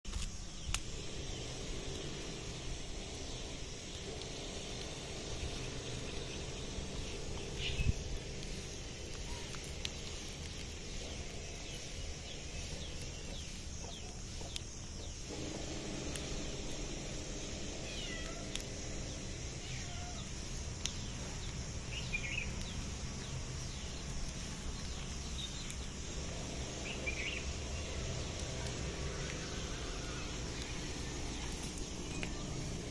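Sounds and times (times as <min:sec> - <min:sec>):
low background hum: 0:00.1 - 0:32.9.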